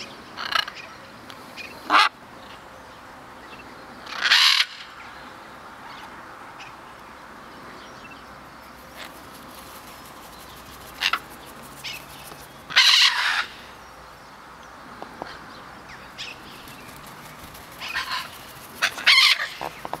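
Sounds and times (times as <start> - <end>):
macaws squawking: 10.9 - 13.6, 16.2 - 20.0.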